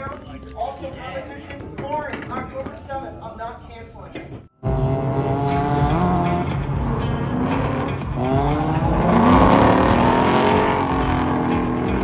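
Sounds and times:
rotary engine revving: 0:04.6 - 0:12.0.

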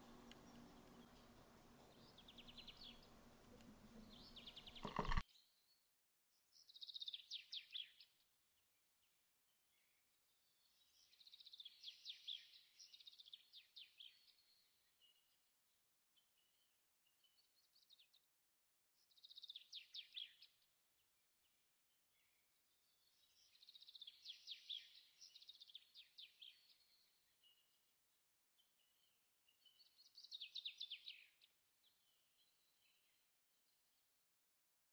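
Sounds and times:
songbird trilling: 0:04.0 - 0:05.2.

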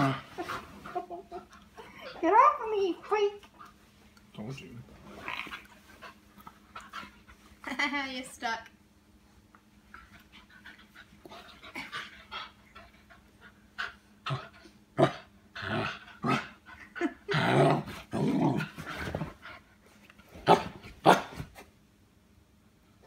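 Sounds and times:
small dog play-growling: 0:05.1 - 0:06.2, 0:14.2 - 0:16.6, 0:17.3 - 0:19.6.

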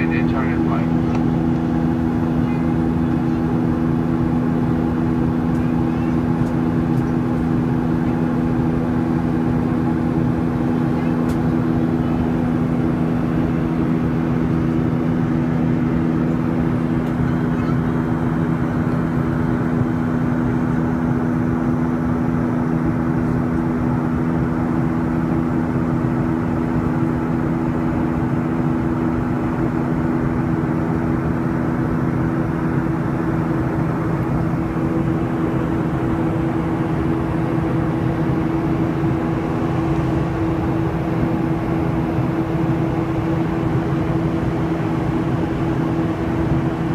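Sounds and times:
jet engines roaring: 0:00.0 - 0:46.9
steady low hums: 0:00.0 - 0:46.9.

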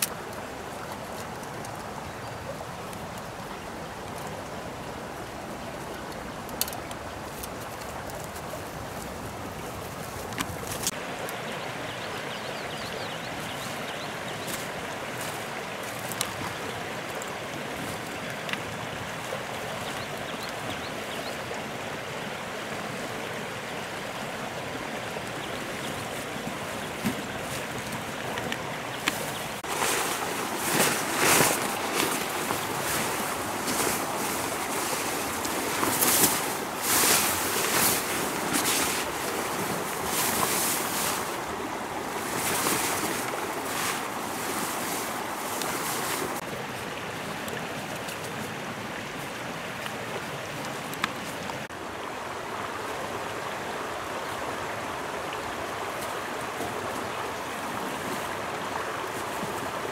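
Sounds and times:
small stream flowing: 0:00.0 - 0:59.9
plastic tarp crinkling and rustling: 0:29.1 - 0:41.4, 0:42.2 - 0:46.4.

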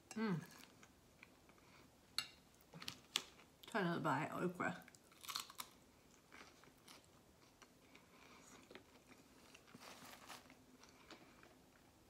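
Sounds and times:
crunching and chewing okra: 0:04.9 - 0:11.9.

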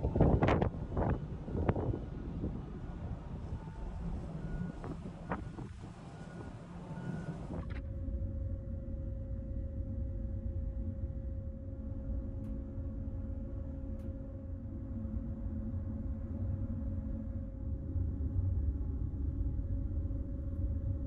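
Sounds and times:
wind noise: 0:00.0 - 0:07.8
ferry engine drone: 0:00.0 - 0:21.0.

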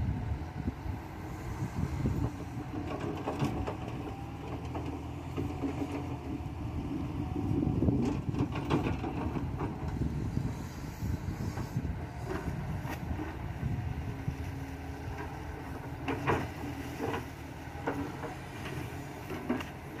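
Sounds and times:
excavator diesel engine running: 0:00.0 - 0:20.0
excavator bucket clanking: 0:02.6 - 0:06.4, 0:07.3 - 0:10.0, 0:15.1 - 0:20.0.

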